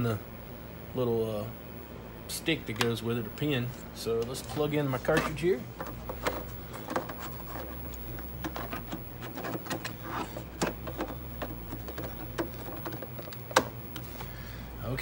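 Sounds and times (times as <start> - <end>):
steady low hum: 0.0 - 15.0
cables rustling: 2.7 - 14.4
plastic clicks and knocks: 5.1 - 14.1.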